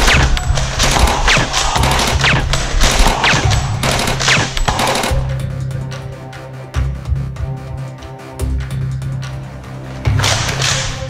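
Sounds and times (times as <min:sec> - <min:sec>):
automatic gunfire bursts: 0:00.0 - 0:05.3
blaster shots: 0:00.0 - 0:05.3
background music bass: 0:00.0 - 0:11.0.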